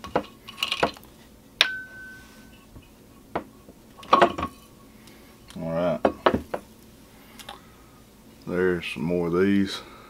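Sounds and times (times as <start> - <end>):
ringing metal clink: 1.6 - 2.6
metal mold clinking: 4.0 - 4.7.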